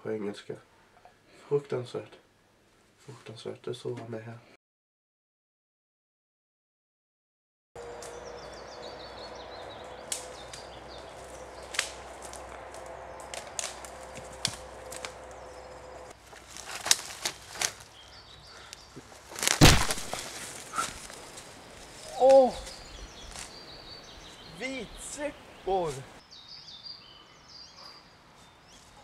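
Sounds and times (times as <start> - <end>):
small bird singing: 7.8 - 16.2, 17.3 - 19.3, 20.6 - 29.0
branches brushing: 7.8 - 26.2
leaves rustling: 7.8 - 26.2
twigs snapping: 10.0 - 23.6.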